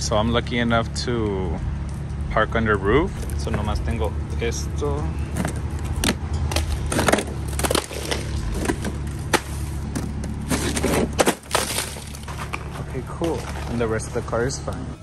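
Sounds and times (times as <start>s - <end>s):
low rumble: 1.0s - 14.7s
ice cracking and crunching: 5.4s - 14.7s
ice chunks clattering off glass: 10.5s - 14.0s.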